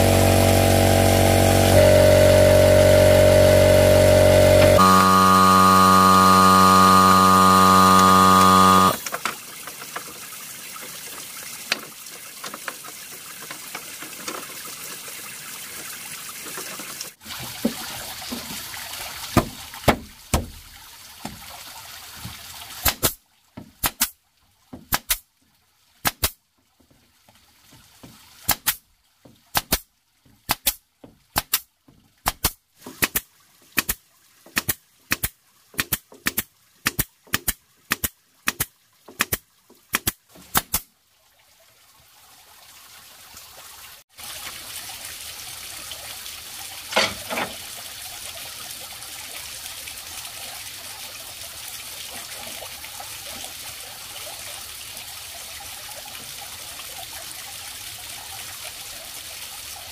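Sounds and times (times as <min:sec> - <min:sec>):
small motor humming: 0:00.0 - 0:09.0.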